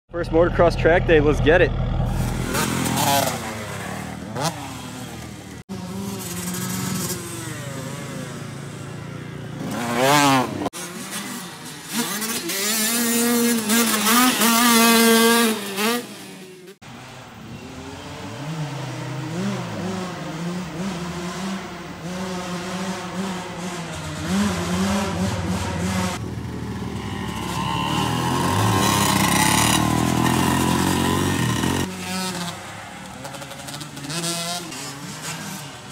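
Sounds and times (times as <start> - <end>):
dirt bike engine revving: 0.2 - 35.9.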